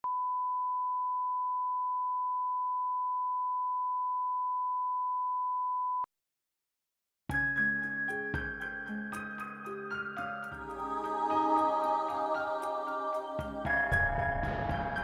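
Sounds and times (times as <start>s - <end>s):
steady test tone beep: 0.0s - 6.1s.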